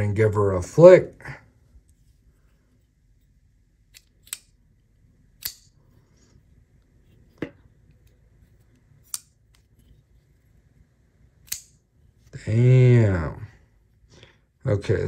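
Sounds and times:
folding knife clicking: 0:03.9 - 0:04.6, 0:05.4 - 0:05.7, 0:09.0 - 0:09.3, 0:11.4 - 0:11.8.

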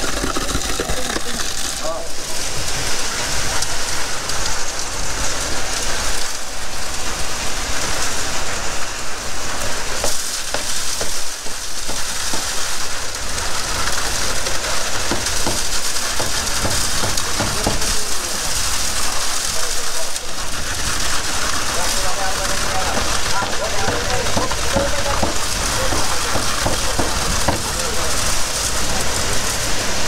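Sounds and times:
concrete rushing from pump hose: 0:00.0 - 0:30.0
knocks: 0:15.1 - 0:17.9, 0:23.8 - 0:27.7.

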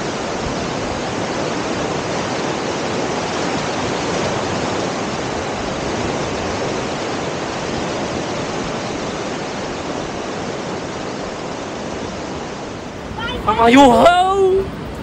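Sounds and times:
waterfall rushing: 0:12.4 - 0:15.0.

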